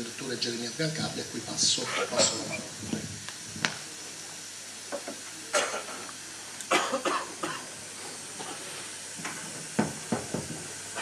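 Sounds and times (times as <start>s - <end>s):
room noise hiss: 0.0s - 11.0s
person coughing: 6.7s - 7.7s.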